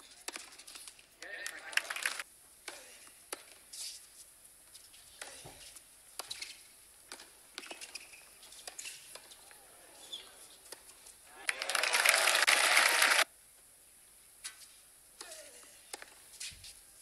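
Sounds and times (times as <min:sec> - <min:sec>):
rackets striking tennis ball: 0:00.2 - 0:01.6, 0:02.6 - 0:03.6, 0:05.1 - 0:09.4, 0:14.4 - 0:16.5
tennis ball bouncing: 0:00.2 - 0:01.6, 0:02.6 - 0:03.6, 0:05.1 - 0:09.4.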